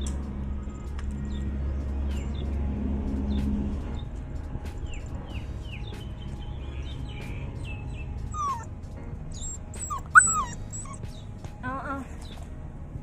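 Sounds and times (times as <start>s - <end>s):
puppy whimpering and yelping: 8.3s - 8.7s, 9.3s - 11.1s.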